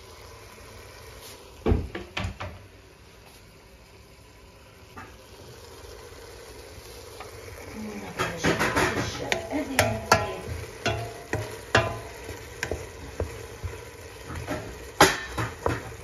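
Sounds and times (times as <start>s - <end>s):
kitchen knocks and clunks: 1.6s - 2.6s, 8.2s - 12.9s, 14.3s - 16.0s.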